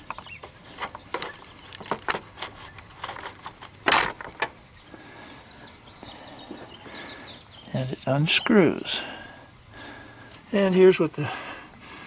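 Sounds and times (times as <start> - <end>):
plastic clicks and rustles: 0.0 - 4.6
scraping rustle: 0.0 - 5.2.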